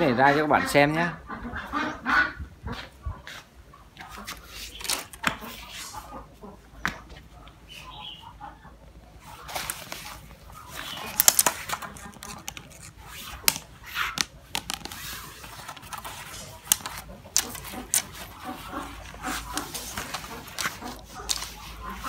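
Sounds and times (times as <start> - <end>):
plastic bag rustling: 9.2 - 22.0
bamboo rods knocking on concrete: 13.4 - 15.0.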